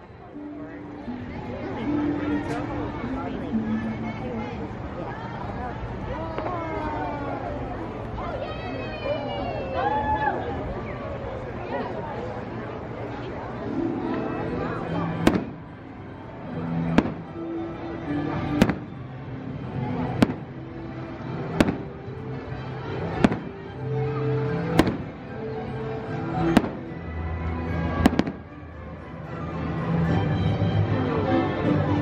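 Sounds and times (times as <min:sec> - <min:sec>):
music playing: 0:00.0 - 0:05.4, 0:13.4 - 0:32.0
fireworks bangs: 0:15.2 - 0:15.6, 0:17.0 - 0:17.3, 0:18.6 - 0:18.9, 0:20.2 - 0:20.5, 0:21.6 - 0:21.9, 0:23.2 - 0:23.5, 0:24.7 - 0:25.2, 0:26.4 - 0:26.8, 0:28.0 - 0:28.5.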